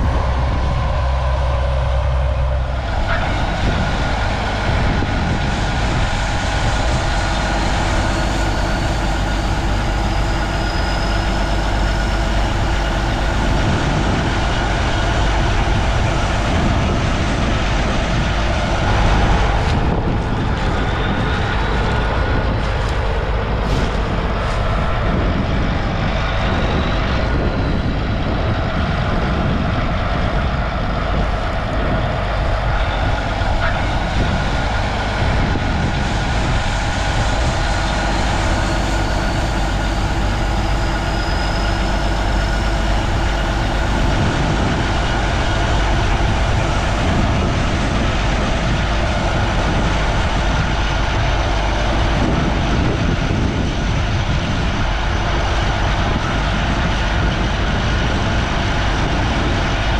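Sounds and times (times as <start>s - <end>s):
faint high whine: 0.0s - 28.8s
diesel engine running: 0.0s - 59.9s.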